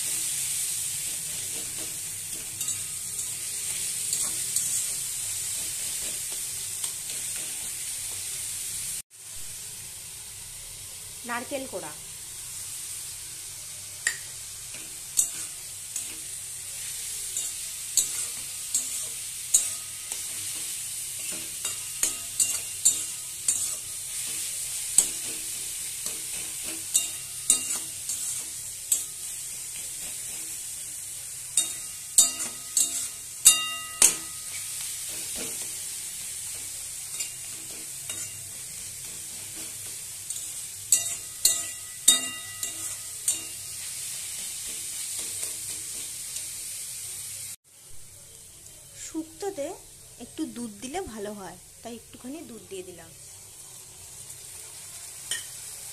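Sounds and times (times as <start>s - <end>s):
food sizzling in a pan: 0.0s - 55.9s.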